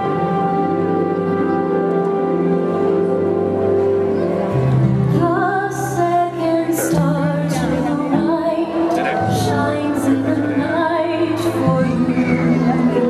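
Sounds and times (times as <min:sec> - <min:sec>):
woman singing: 0:05.1 - 0:13.0
show music: 0:07.7 - 0:13.0.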